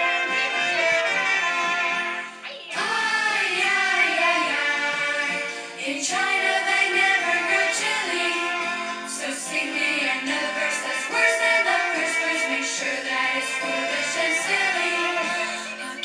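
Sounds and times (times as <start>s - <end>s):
song with singing voice: 0.0s - 16.0s.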